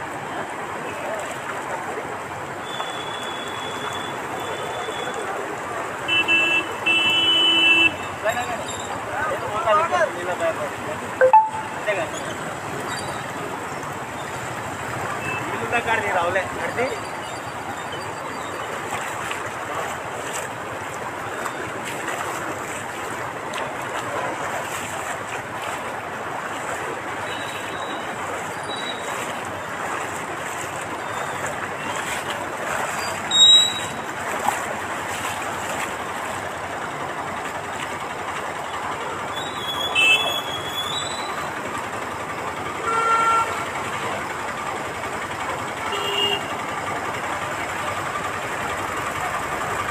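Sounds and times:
floodwater rushing: 0.0s - 49.9s
short high-pitched tones: 11.2s - 11.8s.

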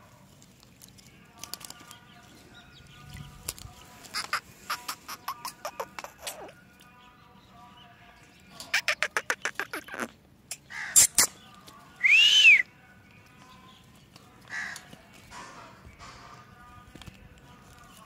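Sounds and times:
parakeet calls: 4.1s - 6.6s, 8.6s - 11.4s.

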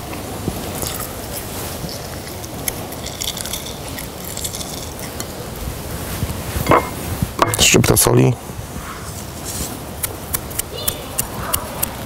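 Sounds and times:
small clicks and crackles: 0.8s - 5.3s.

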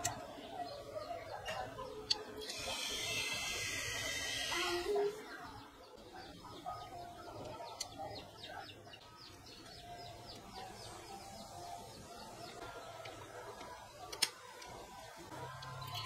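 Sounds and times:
birds calling: 0.0s - 16.0s.

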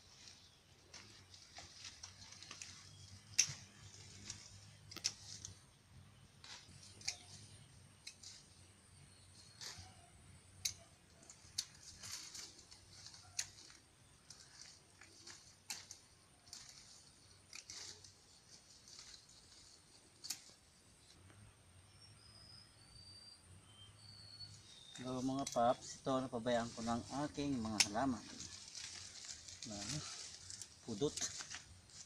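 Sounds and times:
leaves rustling: 0.0s - 21.2s, 24.5s - 32.0s
pruning shears snipping stems: 0.9s - 5.6s, 6.4s - 8.6s, 9.4s - 20.6s, 26.8s - 32.0s.

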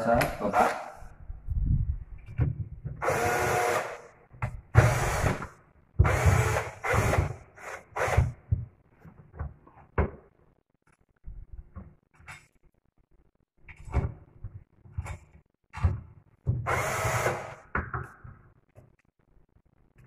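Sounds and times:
drill driver motor bursts: 3.0s - 4.0s, 16.7s - 17.6s.

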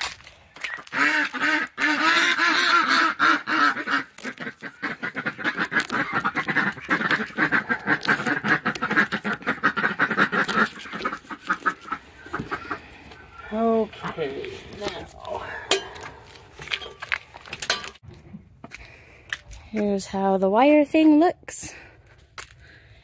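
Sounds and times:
ducks quacking: 0.6s - 15.1s.

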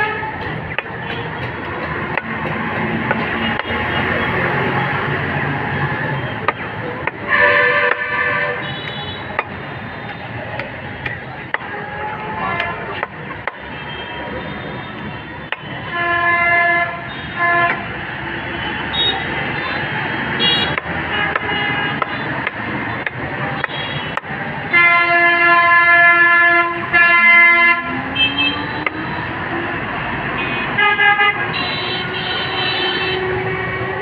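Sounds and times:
traffic noise: 0.0s - 34.0s
cleaver chopping on wooden block: 0.4s - 3.8s
vehicle horns honking: 6.1s - 10.4s, 11.2s - 29.4s, 30.3s - 34.0s.

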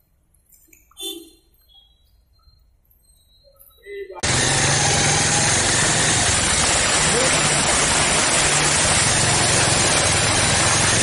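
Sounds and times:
rushing floodwater: 4.2s - 11.0s
vehicle engine running: 4.2s - 11.0s.

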